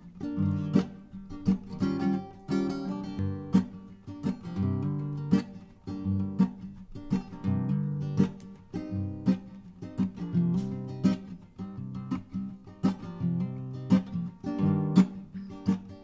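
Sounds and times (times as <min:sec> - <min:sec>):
plucked string instrument: 0:00.0 - 0:16.0.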